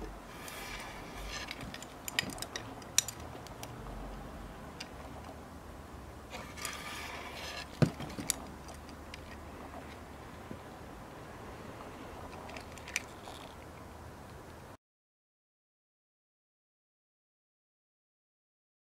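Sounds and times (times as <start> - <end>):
leather straps rustling: 0.4 - 3.6, 12.4 - 13.6
belt buckles clinking: 0.8 - 3.7, 12.4 - 13.6.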